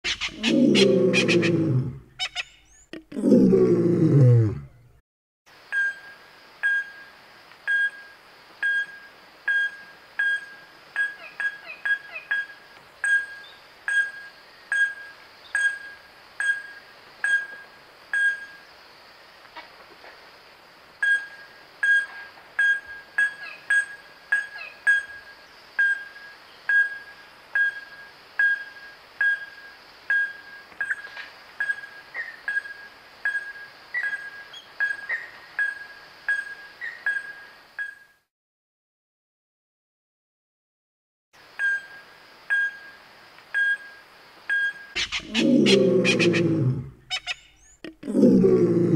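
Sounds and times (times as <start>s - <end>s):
fruit bat pinging calls: 0.0s - 0.9s, 44.5s - 46.4s, 47.1s - 47.9s.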